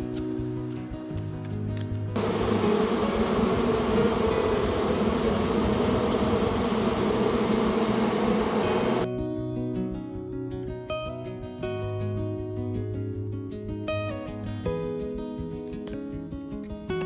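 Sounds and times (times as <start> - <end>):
bees buzzing: 2.2 - 9.1.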